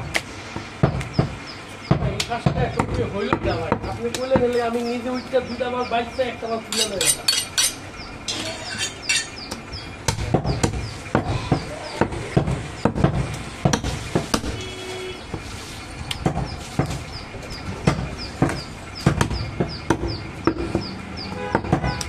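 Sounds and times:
knife chopping meat and bone: 0:00.0 - 0:04.7, 0:09.5 - 0:14.6, 0:17.8 - 0:22.0.

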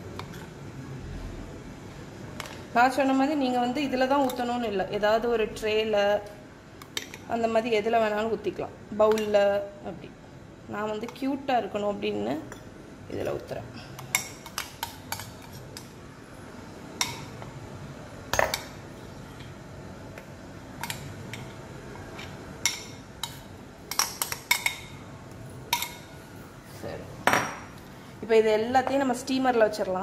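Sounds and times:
metal spoon clinking on bowls: 0:18.3 - 0:18.8, 0:22.2 - 0:25.0, 0:25.7 - 0:26.1.

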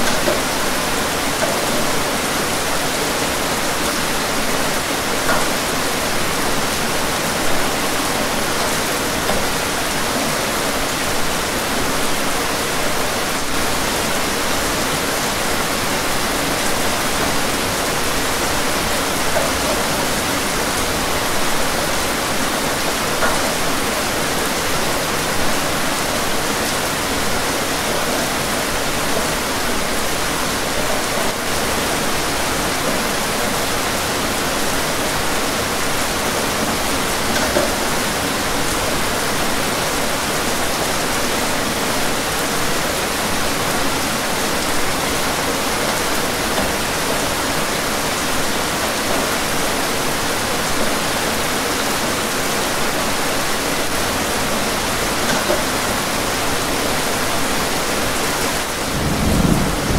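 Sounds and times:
rain on a window pane: 0:00.0 - 0:59.9.

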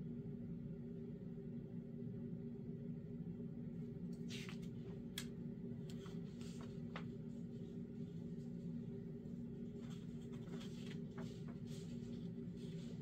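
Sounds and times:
low background hum: 0:00.0 - 0:13.0
paper pages rustling: 0:05.9 - 0:13.0.

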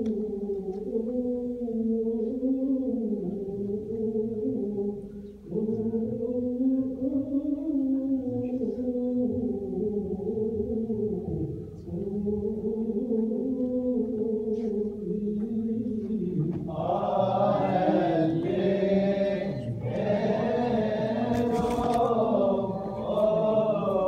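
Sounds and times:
higher voices singing: 0:16.1 - 0:24.0
voices holding long notes: 0:16.2 - 0:24.0.

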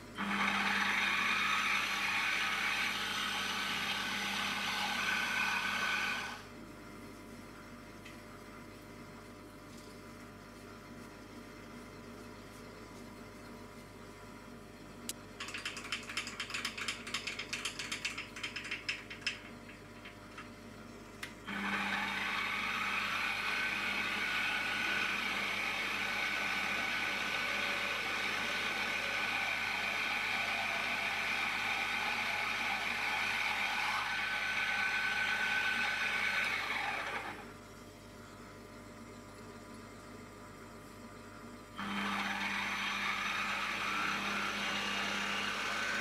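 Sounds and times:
milling machine motor whining: 0:00.0 - 0:06.5, 0:21.4 - 0:37.5, 0:41.8 - 0:46.0.

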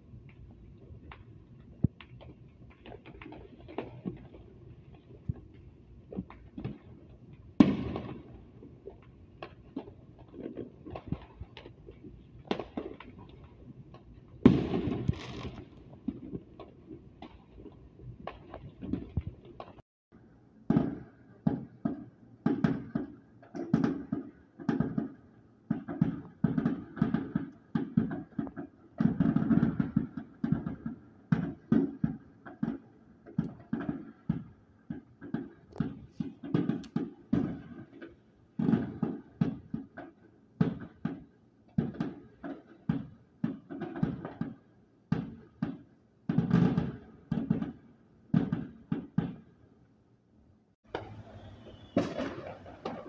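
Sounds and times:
fireworks bangs: 0:01.0 - 0:19.8, 0:20.7 - 0:49.5, 0:50.9 - 0:53.0.

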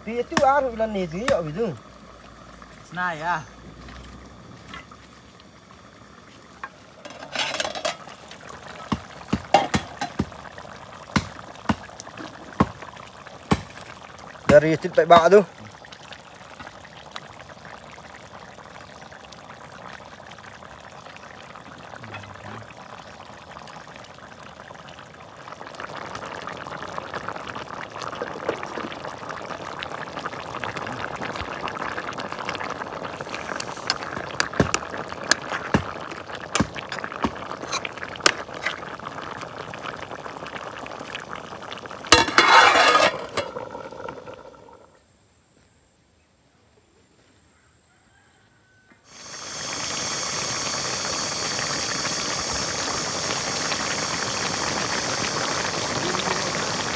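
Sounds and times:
curry bubbling in a wok: 0:00.0 - 0:45.0, 0:48.2 - 0:56.9
sharp pops: 0:00.3 - 0:00.6, 0:08.7 - 0:15.4, 0:33.4 - 0:38.8
metal plate clattering on a wok: 0:07.1 - 0:08.0.

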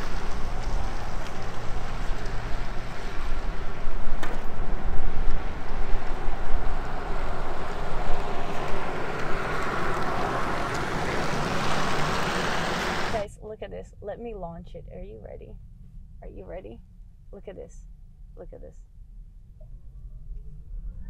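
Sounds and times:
pickup truck tyre noise passing: 0:00.0 - 0:13.2.

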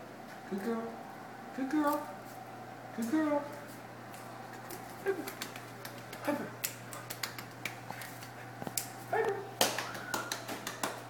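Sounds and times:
puppy claws clicking on tile: 0:04.7 - 0:09.0.

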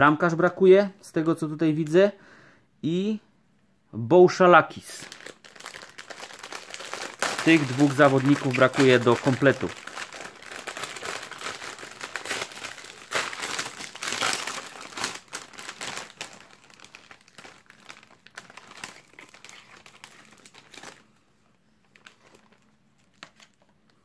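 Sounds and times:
foil wrapper crinkling: 0:04.9 - 0:21.1, 0:21.8 - 0:23.8
foil wrapper tearing: 0:05.0 - 0:21.0.

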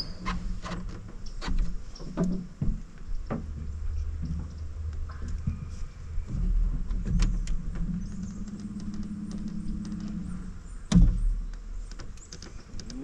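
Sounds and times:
motor humming: 0:06.3 - 0:12.0.

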